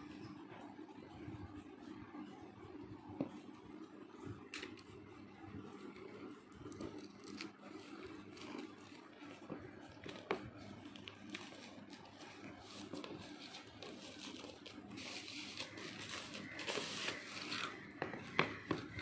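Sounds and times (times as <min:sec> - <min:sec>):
plastic wrapping crinkling: 0:06.7 - 0:17.8
wrapping tearing: 0:07.0 - 0:09.2, 0:10.0 - 0:17.8.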